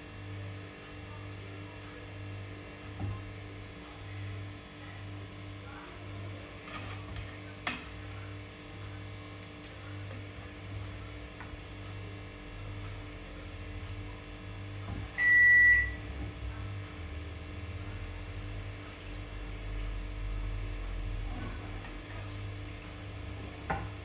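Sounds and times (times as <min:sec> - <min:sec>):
steady low hum: 0:00.0 - 0:24.0
high electronic beep: 0:15.2 - 0:16.0.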